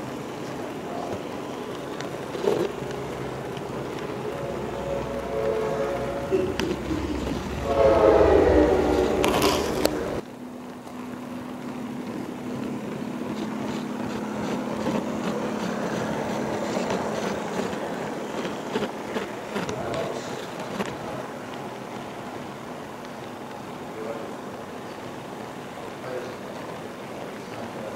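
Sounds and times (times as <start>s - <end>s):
model train rolling rumble: 0.0s - 27.9s
low hum: 1.1s - 18.4s
model locomotive horn: 2.4s - 10.2s.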